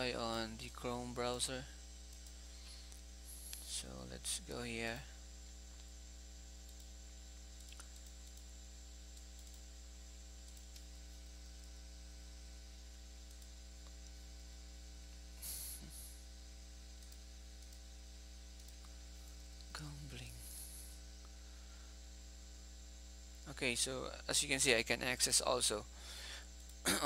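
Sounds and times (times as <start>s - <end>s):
electrical mains hum: 0.0s - 27.0s
recording hiss: 15.4s - 16.2s.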